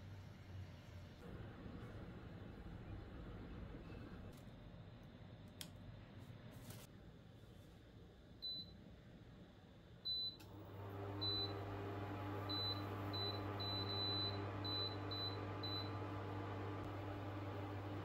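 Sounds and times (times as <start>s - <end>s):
appliance humming: 10.1s - 18.0s.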